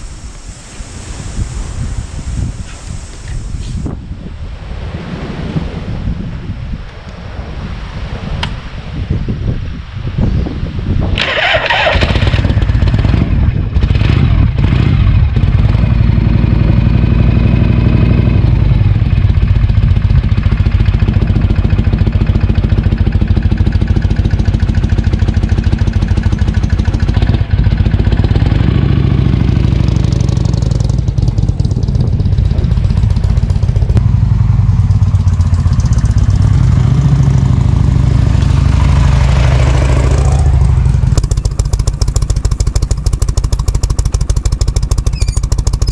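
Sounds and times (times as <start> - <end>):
motorcycle engine running: 11.2 - 45.9.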